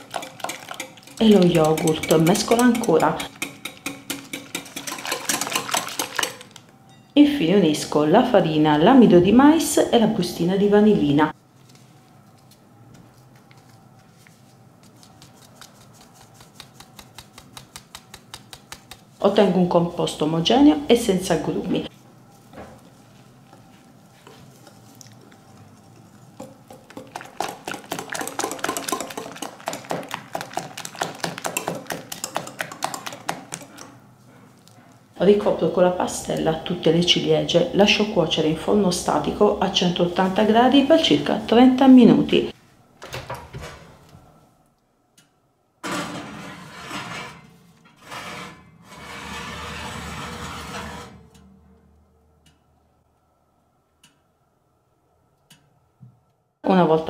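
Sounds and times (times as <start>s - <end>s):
whisk clicking against glass bowl: 0.0s - 6.5s, 26.4s - 34.0s
ceramic dish scraping over wire rack: 45.8s - 51.3s.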